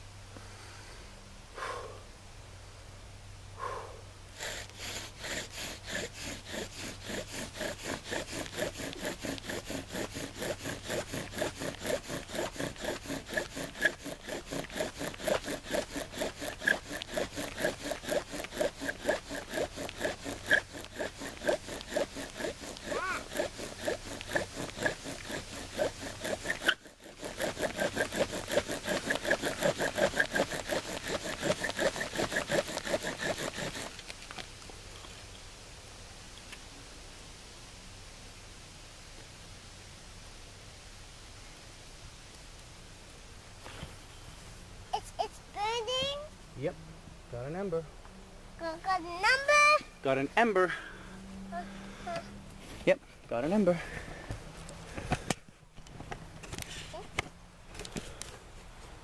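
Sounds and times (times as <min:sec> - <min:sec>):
bow drill grinding and squeaking: 0:04.4 - 0:34.1.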